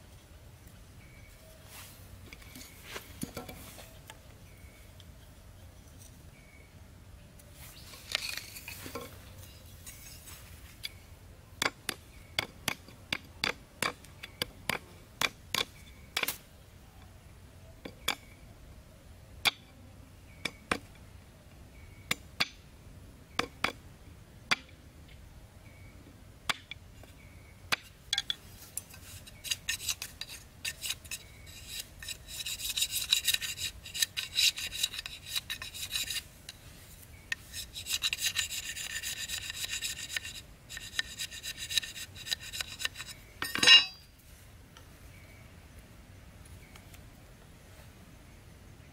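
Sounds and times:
blade scraping bamboo stick: 0:07.8 - 0:11.0, 0:27.7 - 0:44.1.

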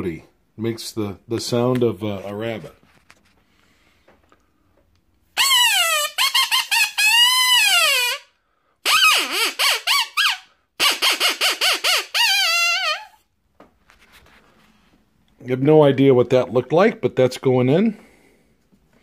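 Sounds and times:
predator call squealing: 0:08.8 - 0:13.2.

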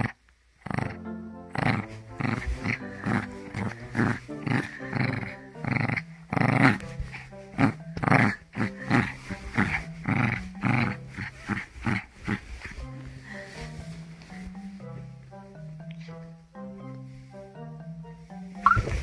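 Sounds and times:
puppy growling: 0:00.0 - 0:12.9
background music: 0:00.6 - 0:19.0.

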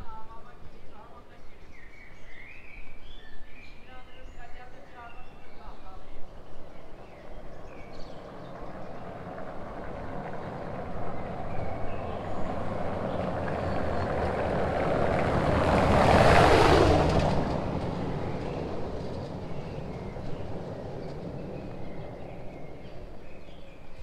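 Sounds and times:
vehicle passing by: 0:06.6 - 0:24.0.

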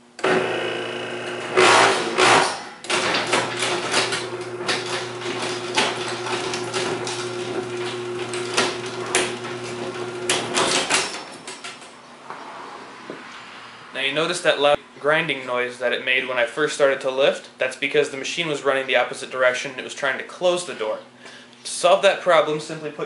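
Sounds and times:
garage door opener motor humming: 0:00.0 - 0:11.8
loud grinding noise: 0:00.1 - 0:11.1.

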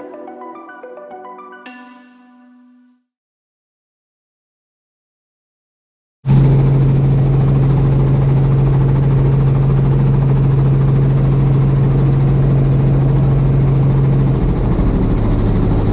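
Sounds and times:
helicopter engine and rotor: 0:06.3 - 0:15.9.

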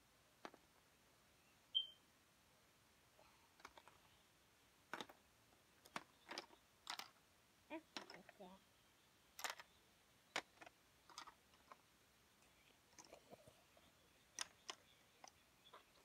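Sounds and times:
short high chirp: 0:01.7 - 0:02.0.

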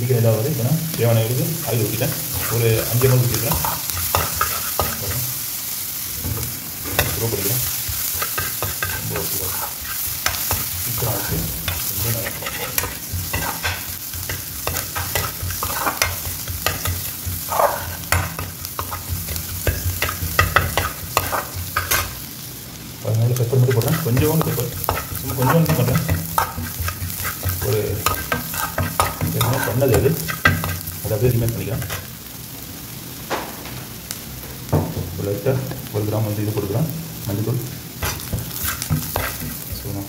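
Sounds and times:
onions sizzling in hot oil: 0:00.0 - 0:40.0
metal spoon scraping a pan: 0:01.6 - 0:05.4, 0:06.2 - 0:22.2, 0:23.3 - 0:32.1, 0:38.0 - 0:39.9.

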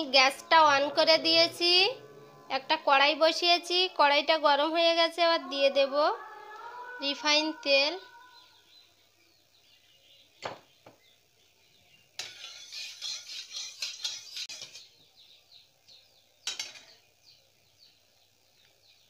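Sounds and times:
spatula scraping metal pan: 0:12.2 - 0:15.0.

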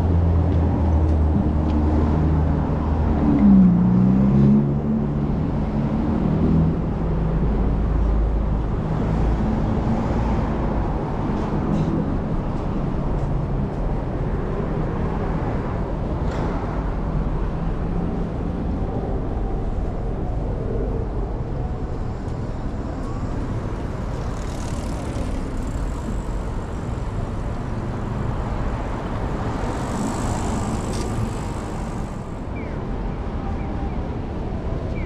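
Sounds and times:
traffic rumble: 0:00.0 - 0:35.0
hiss of passing vehicles: 0:22.4 - 0:32.6.

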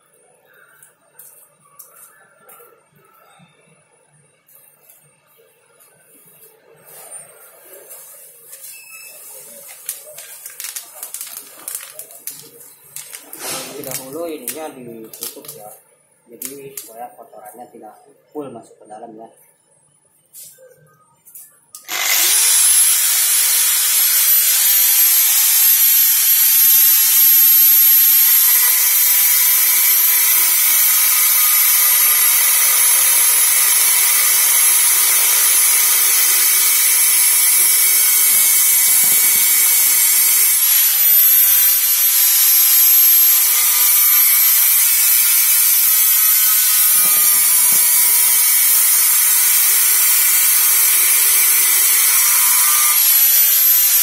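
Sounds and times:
angle grinder grinding metal: 0:08.7 - 0:15.7, 0:21.8 - 0:54.0.

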